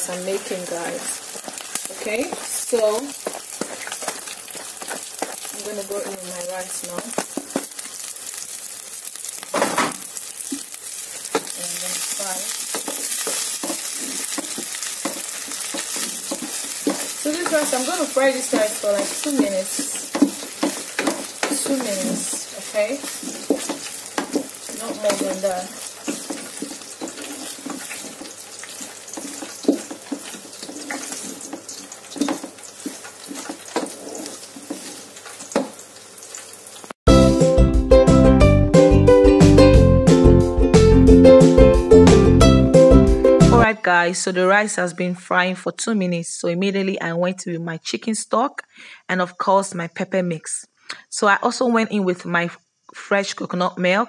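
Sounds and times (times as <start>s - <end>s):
wooden spatula scraping a pot: 0.0s - 7.8s, 11.3s - 36.4s
rice sizzling in oil: 0.0s - 37.0s.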